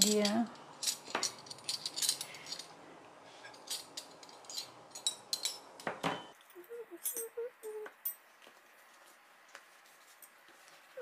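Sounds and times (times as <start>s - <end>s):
cutlery and tableware clinking: 3.4s - 6.4s.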